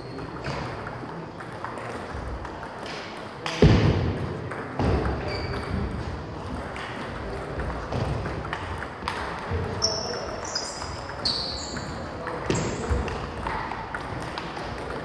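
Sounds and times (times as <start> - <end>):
table tennis balls clicking: 0.2 - 3.6, 4.2 - 15.0
thump: 3.6 - 4.2.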